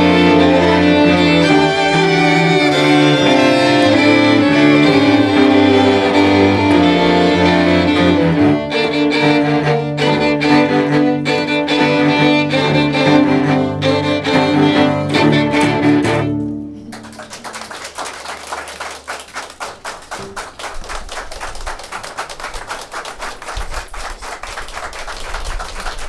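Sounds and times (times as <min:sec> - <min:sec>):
audience applause: 0:00.0 - 0:10.6, 0:15.2 - 0:26.0
string quartet playing: 0:00.0 - 0:17.1.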